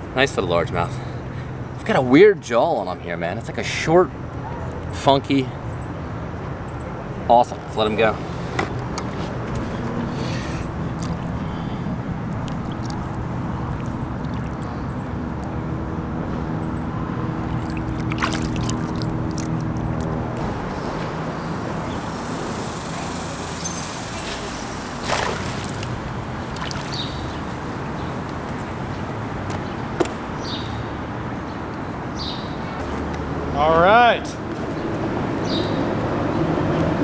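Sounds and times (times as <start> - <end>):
background rush: 6.2 - 37.0
electric trolling motor humming: 19.0 - 28.5.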